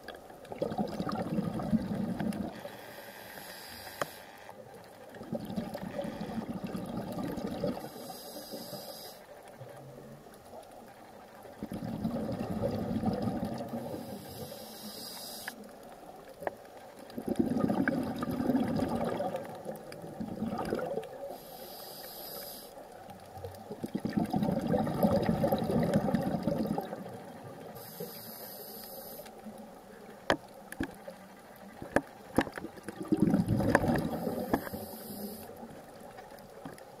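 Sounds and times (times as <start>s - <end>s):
exhaled bubbles rumbling underwater: 0.0s - 2.8s, 4.7s - 8.8s, 9.4s - 14.6s, 15.7s - 21.5s, 22.8s - 28.0s, 29.4s - 37.0s
regulator inhalation hiss: 2.5s - 4.5s, 7.8s - 9.3s, 13.8s - 15.6s, 21.3s - 22.8s, 27.7s - 29.4s, 34.2s - 35.7s.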